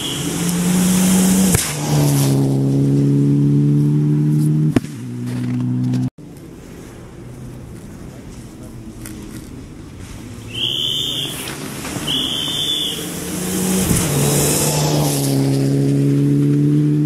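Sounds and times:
rally car passing at speed: 0.0 - 6.0, 9.8 - 17.0.

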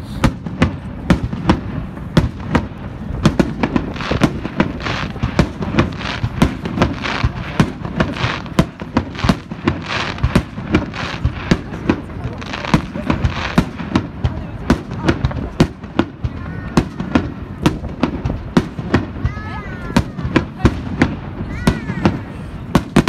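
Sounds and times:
fireworks bursting with sharp bangs: 0.0 - 23.0
fireworks crackling: 0.0 - 23.0.

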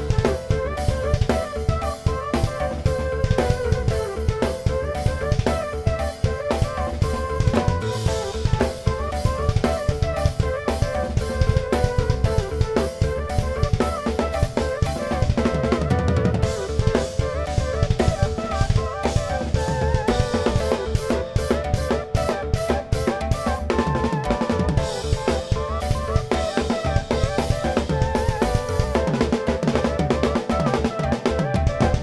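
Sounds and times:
drum kit playing: 0.0 - 32.0
synth melody: 12.4 - 29.7.

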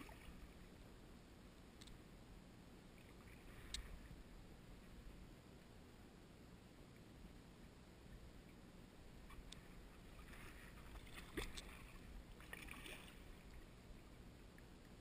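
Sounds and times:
paddle splashes and drips: 0.0 - 0.6, 10.1 - 13.6.

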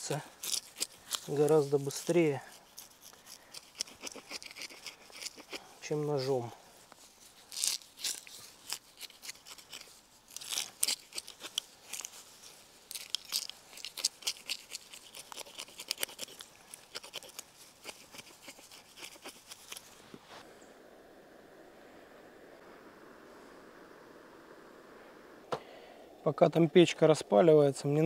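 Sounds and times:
faint steady hiss: 0.0 - 28.0
spoon scraping fish scales: 0.3 - 6.0, 7.4 - 12.2, 12.9 - 20.0.

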